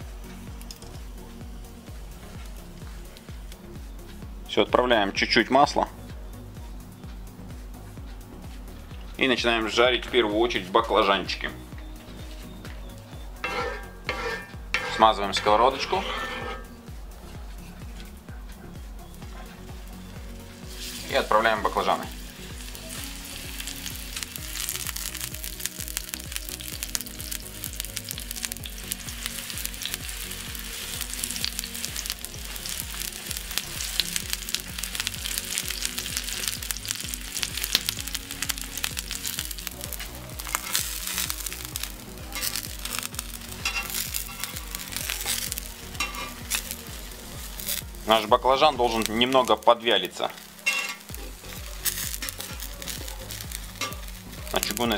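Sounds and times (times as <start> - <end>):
eggplant sizzling in hot oil: 13.3 - 16.8, 19.8 - 54.9.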